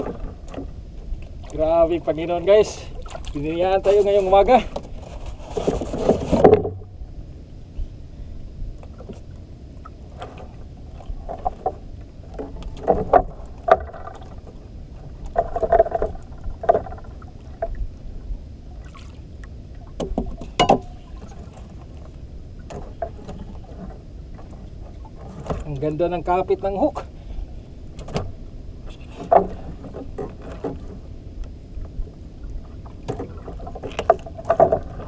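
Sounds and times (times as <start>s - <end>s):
water slapping against hull: 0.0s - 6.9s, 8.8s - 18.2s, 18.8s - 26.3s, 27.9s - 35.0s
knocks and clatter on board: 4.7s - 6.8s, 11.2s - 14.4s, 15.3s - 17.7s, 20.0s - 21.0s, 29.2s - 31.0s, 33.0s - 35.0s
steady low rumble: 6.4s - 35.0s.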